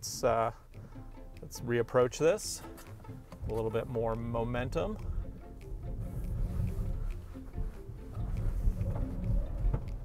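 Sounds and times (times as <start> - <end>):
low dense rumble: 3.3 - 10.0.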